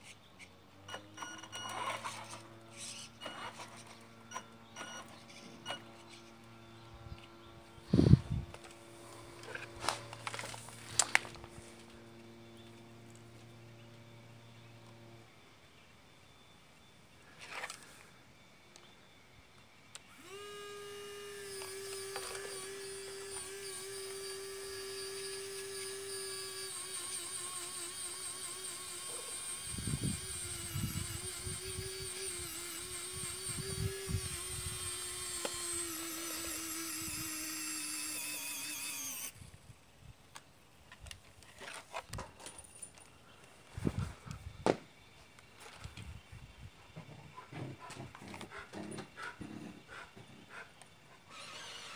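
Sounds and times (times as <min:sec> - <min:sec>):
small electric motor whining: 0:00.0 - 0:39.8, 0:51.2 - 0:51.9.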